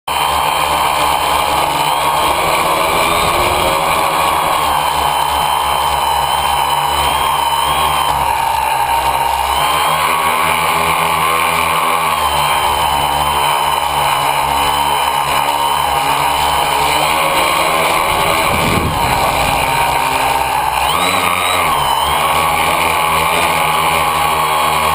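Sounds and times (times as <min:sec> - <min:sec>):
tricopter motors whining: 0:00.1 - 0:24.9
low rumble: 0:01.4 - 0:06.4, 0:17.6 - 0:20.9.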